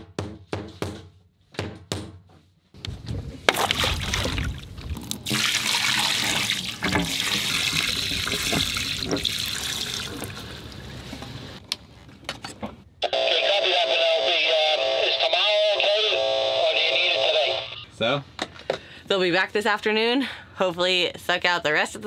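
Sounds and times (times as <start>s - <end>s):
water pouring and splashing: 3.5s - 11.4s.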